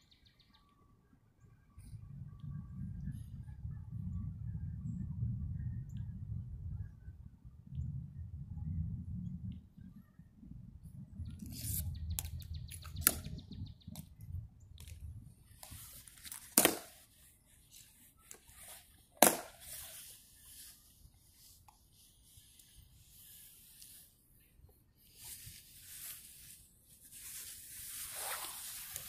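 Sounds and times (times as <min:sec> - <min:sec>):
low rumble: 0:01.9 - 0:11.4.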